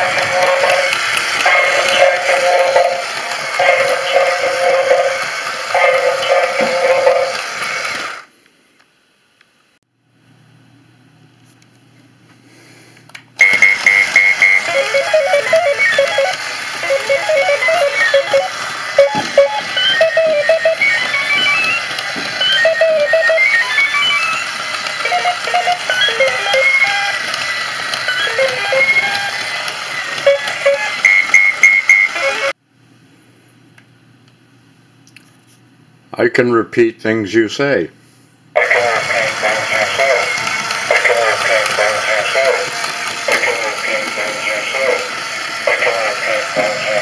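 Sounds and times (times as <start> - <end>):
faint motor hum: 0.0 - 47.0
toy robot electronic bleeps: 13.4 - 32.5.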